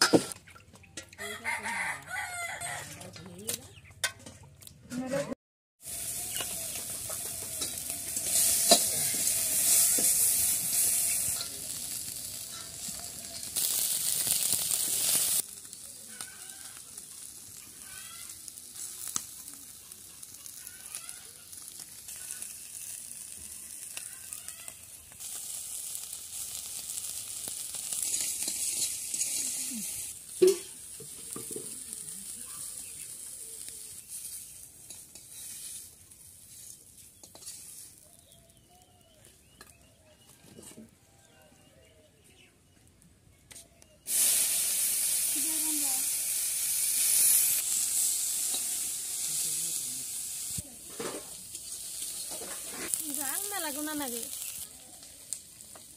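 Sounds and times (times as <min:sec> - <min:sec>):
fish sizzling in hot oil: 0:05.8 - 0:39.9, 0:44.0 - 0:55.9
metal spatula stirring in wok: 0:06.0 - 0:15.5, 0:27.6 - 0:33.0, 0:34.0 - 0:38.3, 0:50.9 - 0:55.1.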